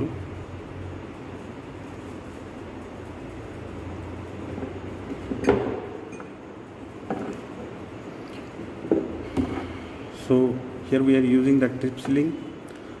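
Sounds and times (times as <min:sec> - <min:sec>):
steady low hum: 0:00.0 - 0:13.0
glass knocks and clinks: 0:05.3 - 0:06.4.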